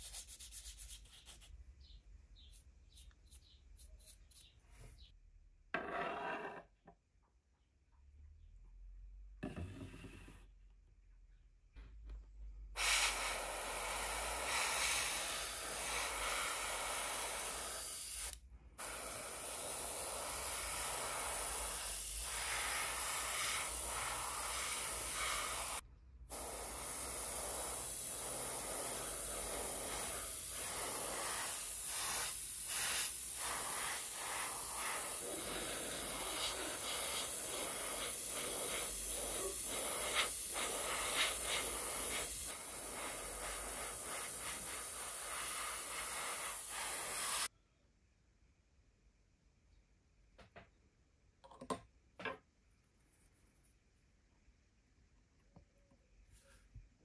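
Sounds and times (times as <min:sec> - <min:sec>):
airbrush spraying hiss: 0:12.8 - 0:47.5.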